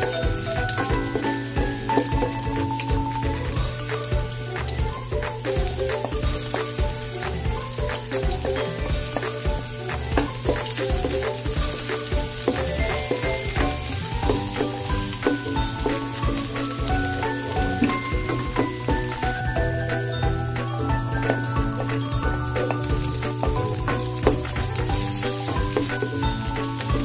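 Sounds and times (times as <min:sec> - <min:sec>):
wooden spatula scraping wok: 0:00.0 - 0:19.5
background music: 0:00.0 - 0:27.0
ginger and garlic sizzling in oil: 0:00.0 - 0:27.0.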